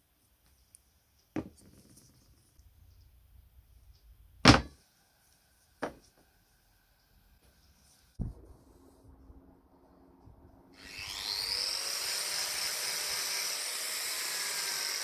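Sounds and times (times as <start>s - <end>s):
knocks on wooden workbench: 4.5s - 4.7s.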